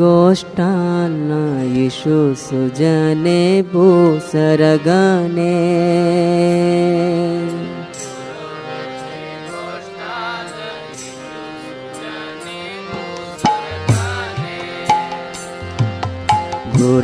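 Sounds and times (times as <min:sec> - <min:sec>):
hand drum strikes: 0:13.4 - 0:17.0.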